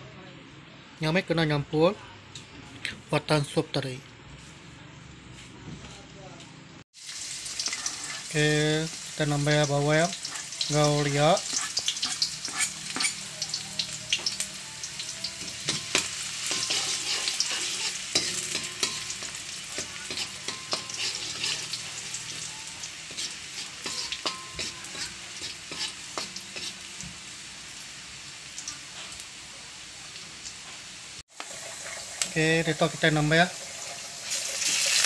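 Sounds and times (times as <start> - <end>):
garlic sizzling in hot oil: 7.0 - 35.0
spatula scraping a wok: 7.4 - 9.1, 10.1 - 13.6, 15.0 - 27.1.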